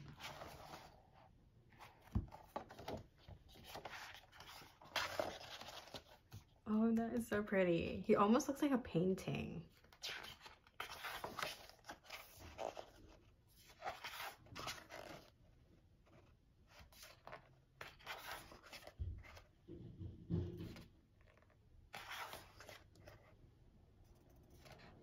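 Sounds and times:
glossy pages turning and rustling: 0.0s - 6.6s, 9.7s - 15.4s, 16.0s - 19.5s, 20.7s - 23.4s, 24.2s - 25.0s.

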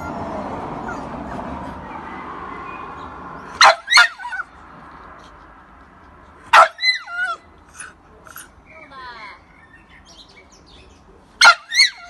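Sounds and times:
dog barking and whining: 0.0s - 2.3s, 3.6s - 4.6s, 6.5s - 8.6s, 11.4s - 12.0s.

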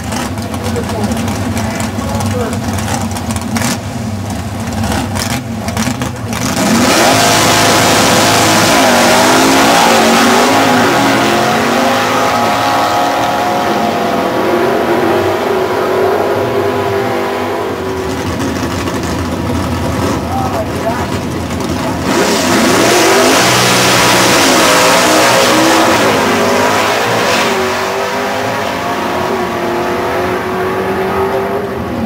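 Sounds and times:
engine gear shifts: 0.0s - 13.0s
drag car engine accelerating: 0.0s - 32.0s.

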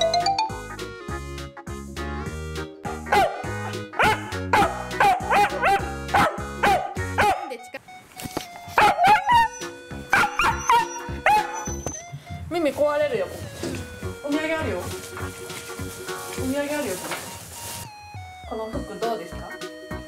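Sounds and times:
background music: 0.0s - 20.0s
dog barking: 3.1s - 7.5s, 8.8s - 11.9s.

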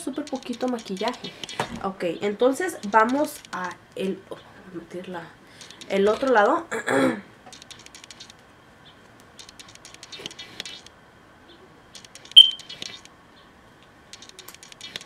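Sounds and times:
high-pitched chirp: 12.3s - 13.0s.

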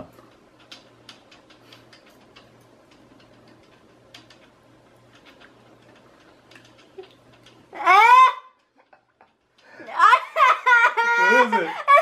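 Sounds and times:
small clicks and ticks: 0.0s - 7.7s, 8.6s - 9.8s
low steady hum: 0.0s - 12.0s.

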